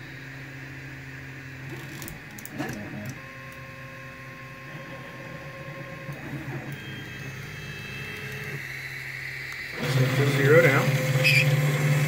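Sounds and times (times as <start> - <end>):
fan hum: 0.0 - 12.0
motor whine: 0.0 - 12.0
stepper motor clicks: 8.1 - 8.6, 9.4 - 12.0.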